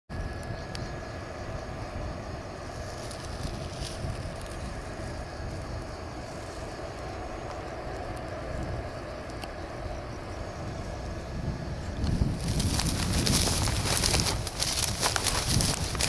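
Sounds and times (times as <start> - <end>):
faint ticks: 0.4 - 0.9, 6.4 - 10.0
low rumble: 1.3 - 16.0.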